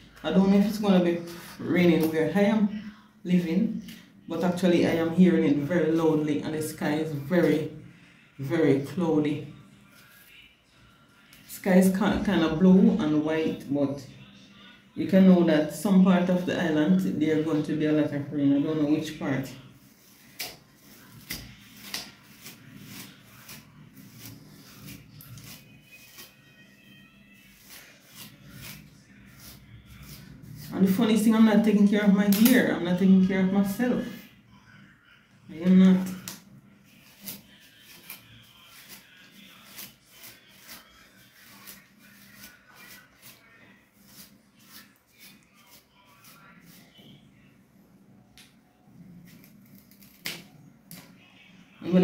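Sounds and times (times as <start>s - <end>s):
comb rustling through hair: 0.0s - 2.6s, 18.6s - 33.0s, 35.6s - 47.2s, 49.1s - 51.2s.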